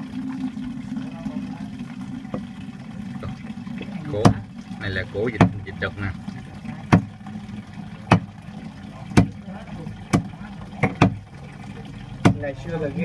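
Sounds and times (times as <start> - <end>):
cleaver chopping on wooden board: 6.9 - 7.1, 8.1 - 8.3, 10.1 - 11.2, 12.2 - 12.4.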